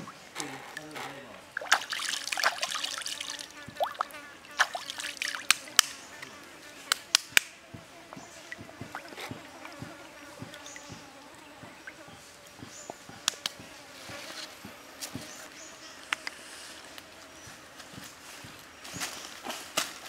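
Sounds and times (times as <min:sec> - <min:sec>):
water splashing and dripping: 0:00.0 - 0:05.9, 0:08.5 - 0:09.8
insect buzzing: 0:00.0 - 0:18.2.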